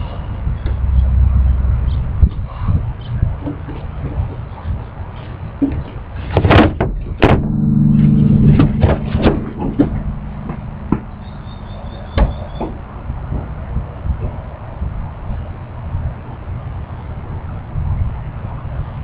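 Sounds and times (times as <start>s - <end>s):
guitar bumping down: 7.2s - 12.9s
guitar chord ringing: 7.2s - 13.0s.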